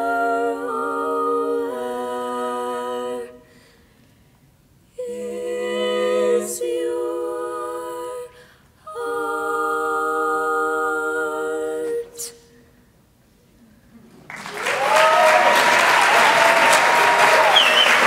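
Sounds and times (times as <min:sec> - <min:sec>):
female quartet singing a cappella: 0:00.0 - 0:03.9, 0:04.9 - 0:12.8.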